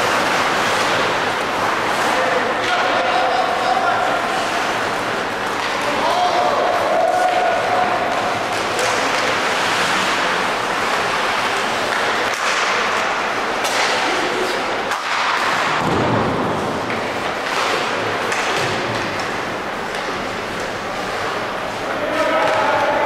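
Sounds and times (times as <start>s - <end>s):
rink and crowd noise: 0.0s - 23.0s
hockey sticks and puck knocking: 4.4s - 9.5s, 11.8s - 14.1s, 14.9s - 20.8s.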